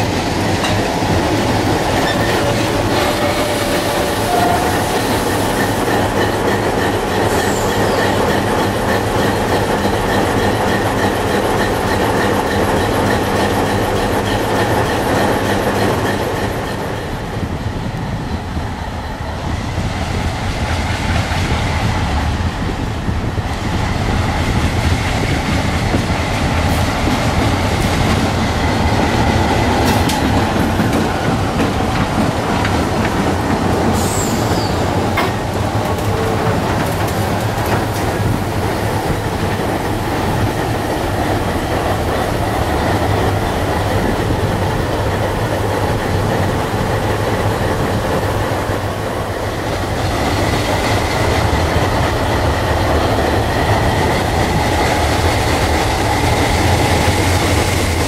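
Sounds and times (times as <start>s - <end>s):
diesel locomotive engines droning: 0.0s - 58.0s
train wheels on rails: 0.0s - 58.0s.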